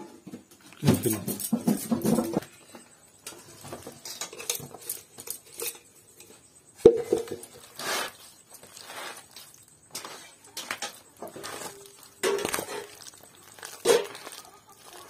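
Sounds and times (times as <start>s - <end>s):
metal cookware clanking: 3.2s - 7.8s, 9.8s - 14.4s
spoon scraping and tapping: 4.0s - 7.7s.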